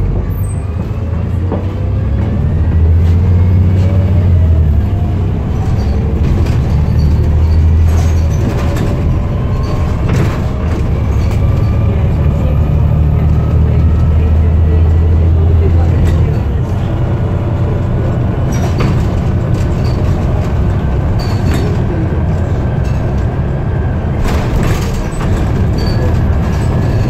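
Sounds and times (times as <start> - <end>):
bus diesel engine droning: 0.0 - 27.0
bodywork rattles and clicks: 5.2 - 12.4, 14.9 - 23.5, 24.1 - 27.0.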